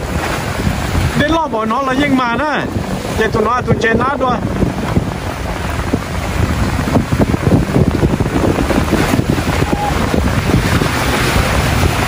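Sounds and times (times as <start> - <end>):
surf washing against rocks: 0.0 - 12.0
wind buffeting microphone: 0.0 - 12.0.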